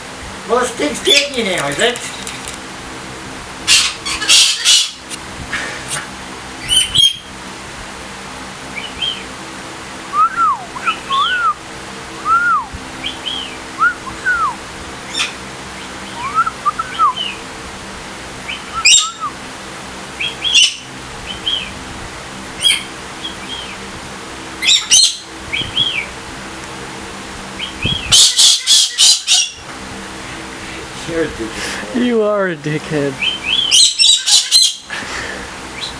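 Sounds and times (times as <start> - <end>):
harsh bird calls: 1.0 - 1.4, 3.7 - 5.1, 6.6 - 7.3, 10.2 - 11.6, 12.2 - 17.5, 18.4 - 19.4, 20.1 - 21.8, 24.6 - 26.2, 27.5 - 29.6, 33.1 - 34.9
loud bird squawk: 3.7 - 5.1, 10.6 - 11.6, 13.0 - 17.4, 18.5 - 19.4, 20.2 - 21.6, 24.6 - 26.1, 27.6 - 29.6, 33.2 - 34.9
bird chirping: 10.7 - 11.6, 13.0 - 17.4, 18.5 - 19.3, 33.2 - 34.9.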